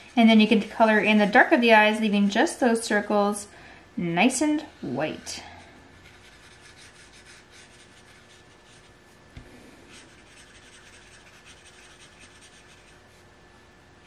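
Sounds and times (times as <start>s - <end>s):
marker scratching on paper: 6.0s - 9.0s, 9.9s - 13.1s.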